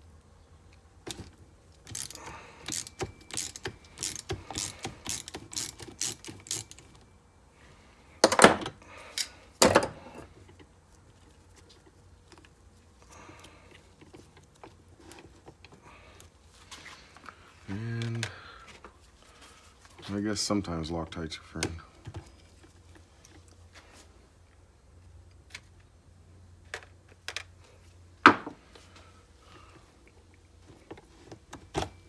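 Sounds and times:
ratcheting driver clicking: 1.8s - 6.8s.

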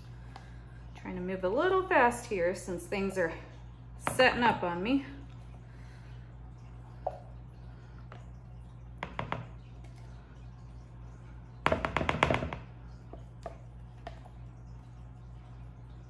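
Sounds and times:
low electrical hum: 0.0s - 16.0s
plastic pitcher knocking on bowl: 9.0s - 9.6s, 11.6s - 12.7s.

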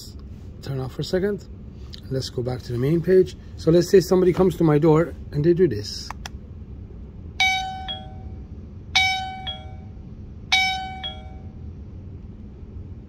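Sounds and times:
doorbell ding-dong chime: 7.4s - 8.4s, 9.0s - 11.6s.

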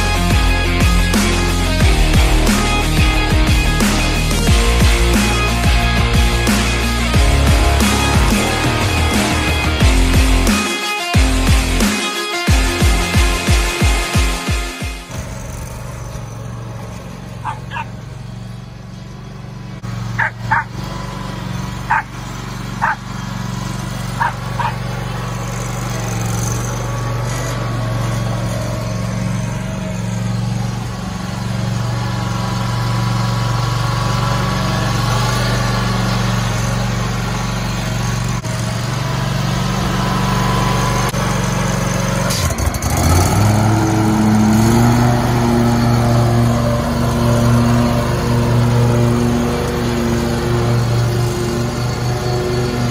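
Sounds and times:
mower engine running: 0.0s - 52.9s
dog barking: 17.4s - 18.0s, 20.2s - 20.7s, 21.9s - 22.1s, 22.8s - 23.0s, 24.2s - 24.8s.

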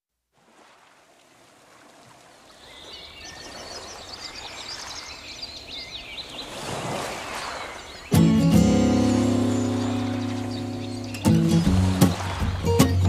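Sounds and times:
small birds chirping: 2.5s - 6.7s, 7.3s - 13.0s
music with sustained chord: 8.2s - 13.0s
wash of noise: 8.8s - 13.0s.

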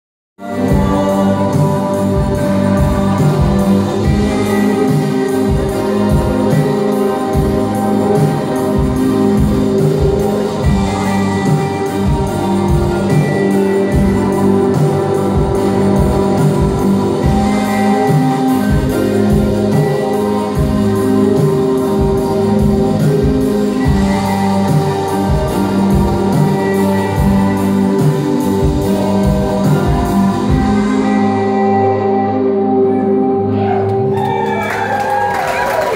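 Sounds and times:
electric guitars: 0.4s - 35.9s
keyboard notes: 0.4s - 35.9s
steady drum beat: 0.5s - 31.2s.

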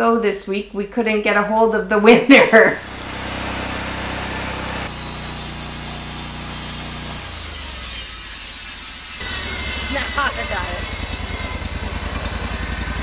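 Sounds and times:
gas engine humming: 2.8s - 7.4s, 9.2s - 13.0s
band saw cutting log: 2.8s - 13.0s.

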